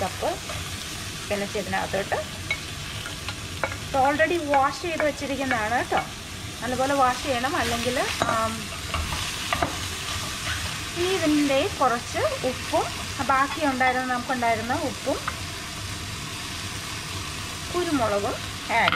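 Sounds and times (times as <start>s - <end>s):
food sizzling: 0.0s - 18.9s
spatula stirring in a pan: 7.0s - 11.6s.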